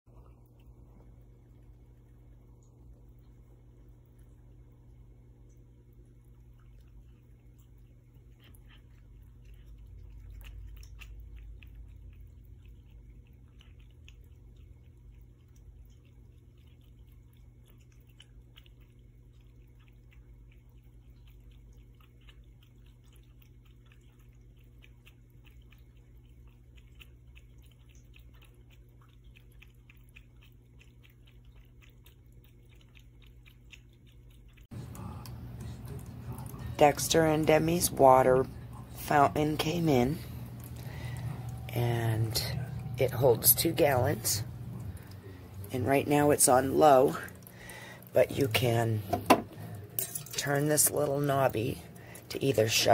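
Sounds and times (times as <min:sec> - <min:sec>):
cat lapping water: 0:00.1 - 0:52.9
faint low hum: 0:00.1 - 0:52.9
water pouring into bowl: 0:40.6 - 0:52.9.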